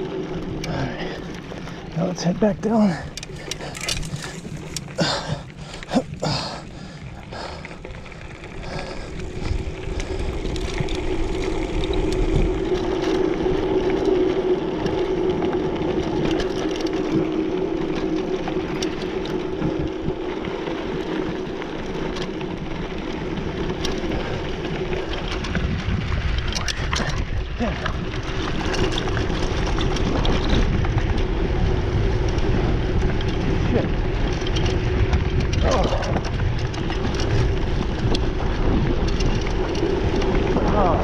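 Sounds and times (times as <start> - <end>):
bike clicks and rattles: 0.0 - 41.0
bike tyres on dirt and stones: 0.0 - 41.0
wind noise on microphone: 2.9 - 20.3, 22.4 - 41.0.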